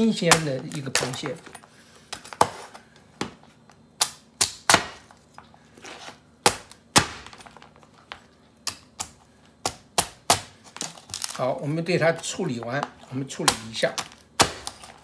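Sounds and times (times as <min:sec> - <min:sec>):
knife chopping crab shells: 0:00.0 - 0:01.3, 0:06.4 - 0:07.5, 0:08.6 - 0:10.9, 0:12.7 - 0:15.0.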